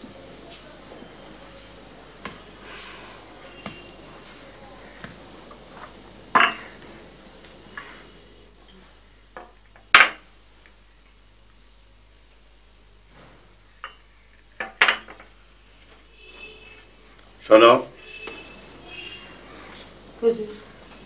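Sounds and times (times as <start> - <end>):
teacups and saucers clinking: 6.3 - 6.9.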